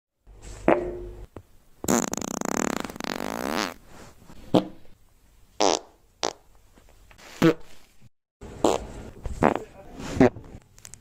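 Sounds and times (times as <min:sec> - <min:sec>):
farts: 0:01.8 - 0:03.8, 0:05.6 - 0:06.4, 0:08.6 - 0:10.4.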